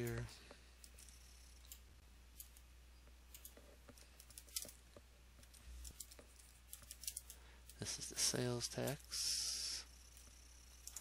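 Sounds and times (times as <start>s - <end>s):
faint low hum: 0.0s - 11.0s
mouse and keyboard clicks: 3.3s - 4.8s.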